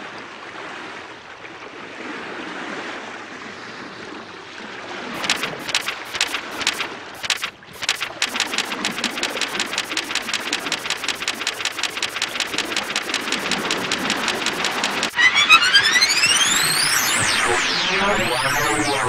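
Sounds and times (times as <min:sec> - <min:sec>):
rapid mechanical clicking: 0:05.2 - 0:15.2
electronic music with synth sweeps: 0:05.2 - 0:19.0.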